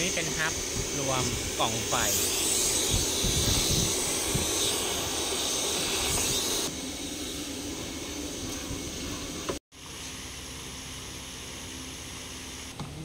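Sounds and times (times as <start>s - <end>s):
hissing workshop noise: 0.0s - 13.0s.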